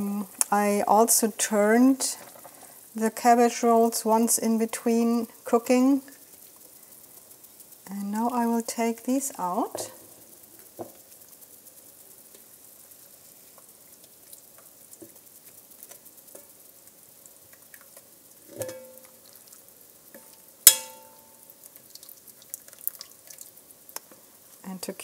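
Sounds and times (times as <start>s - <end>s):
faint steady sizzle: 0.0s - 25.0s
metal tongs clinking on cookware: 18.5s - 19.2s, 20.7s - 21.4s
sharp ringing clank: 18.6s - 19.2s, 20.7s - 21.4s.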